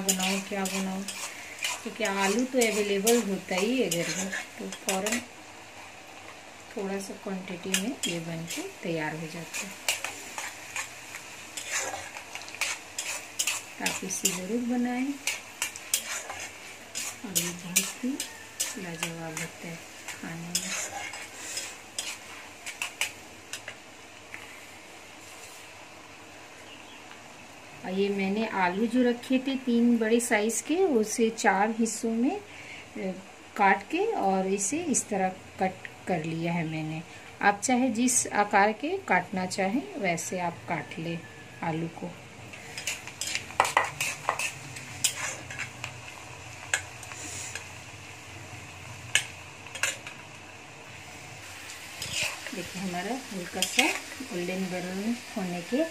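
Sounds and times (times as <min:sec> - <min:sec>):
metal spatula scraping a pan: 0:00.0 - 0:05.3, 0:07.5 - 0:23.8, 0:42.5 - 0:45.9, 0:46.7 - 0:47.7, 0:49.1 - 0:50.2, 0:51.9 - 0:54.9
onion and chilli sizzling in oil: 0:00.0 - 0:55.9.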